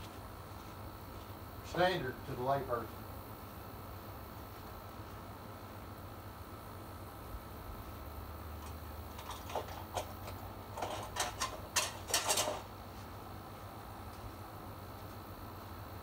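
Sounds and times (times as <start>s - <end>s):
hand tools clinking: 9.2s - 12.7s.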